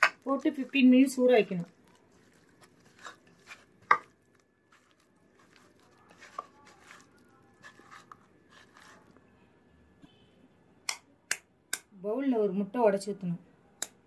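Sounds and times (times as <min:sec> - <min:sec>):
wet squishing of prawns in masala: 0:00.0 - 0:09.3.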